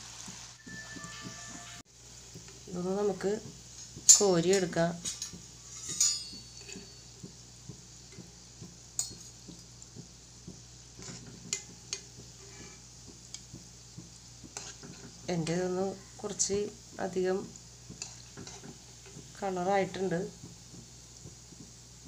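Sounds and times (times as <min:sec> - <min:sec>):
balls deep-frying in oil: 0:00.0 - 0:22.0
metal spoon clinking against pan: 0:04.0 - 0:07.1, 0:09.0 - 0:09.3.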